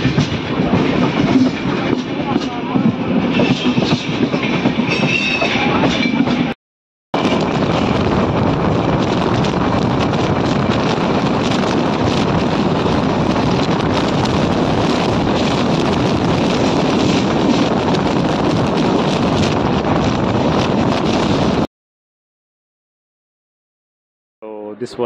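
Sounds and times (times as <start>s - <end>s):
train running on track: 0.0s - 6.6s, 7.2s - 21.7s
wind rushing over microphone: 7.2s - 21.7s.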